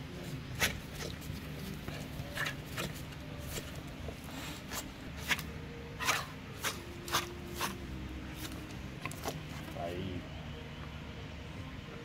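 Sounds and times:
low steady background noise: 0.0 - 12.0
dog tugging rubber chew toy: 0.2 - 9.8.

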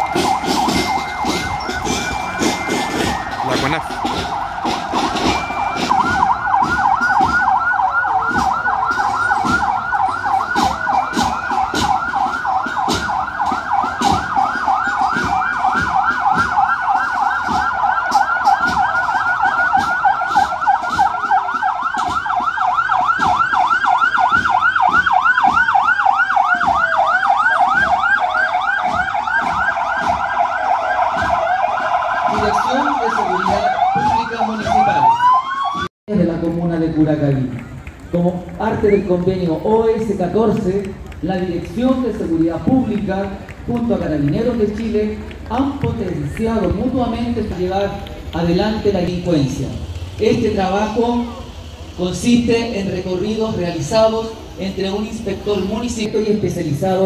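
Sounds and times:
rising siren wail: 0.0 - 35.9, 37.3 - 56.1
siren sweeping down: 0.0 - 35.9
siren yelping: 0.0 - 35.9.

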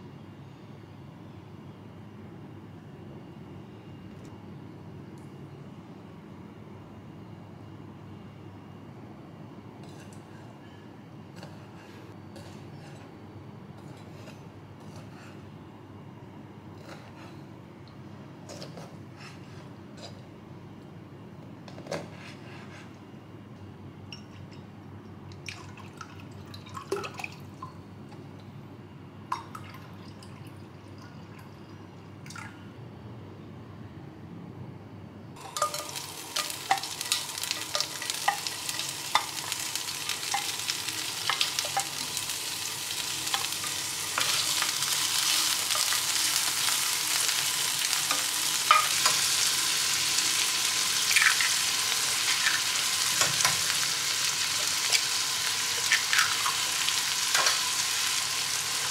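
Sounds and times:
food sizzling in hot oil: 35.4 - 58.9.

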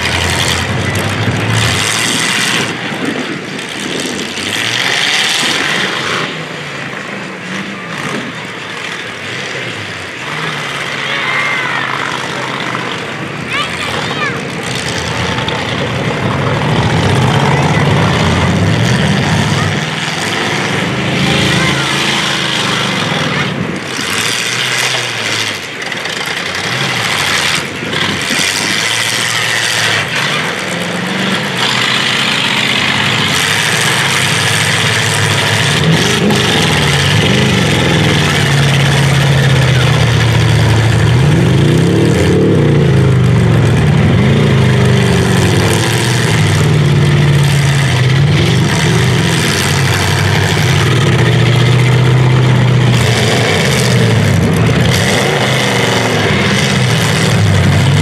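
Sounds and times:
car engines revving: 0.0 - 58.0
cars crashing: 0.0 - 58.0
engine and tyre roar: 0.0 - 58.0.

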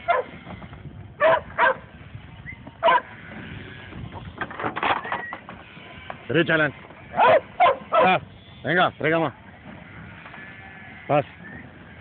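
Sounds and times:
dog barking: 0.1 - 0.3, 1.2 - 1.8, 2.8 - 3.1, 7.2 - 8.1.

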